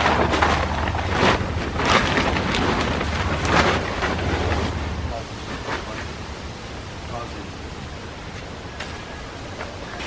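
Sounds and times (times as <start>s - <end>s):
tent fabric rustling and flapping: 0.0s - 6.1s.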